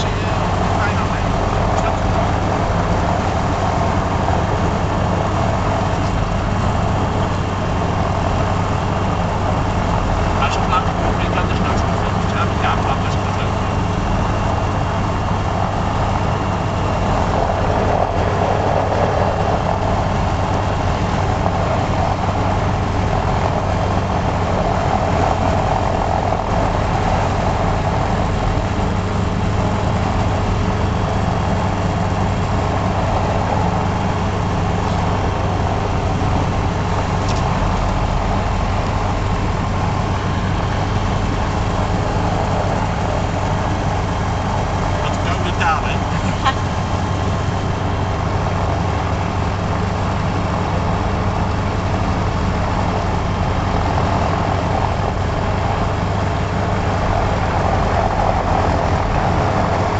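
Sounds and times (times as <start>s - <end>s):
light aircraft engine and propeller: 0.0s - 59.9s.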